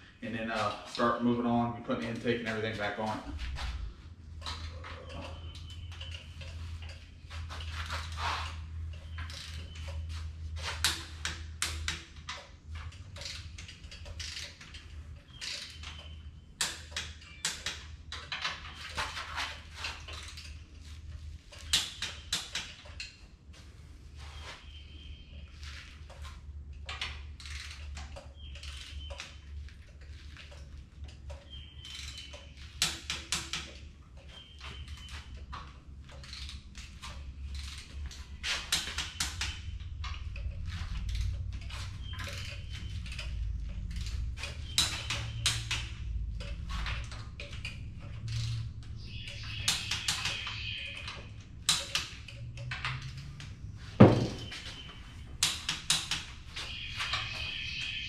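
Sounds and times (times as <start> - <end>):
metallic clank: 54.0 - 54.9.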